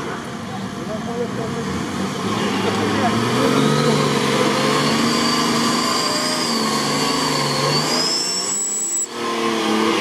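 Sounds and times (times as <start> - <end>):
off-road vehicle engine revving: 0.0 - 10.0
thin high whine: 3.9 - 9.3.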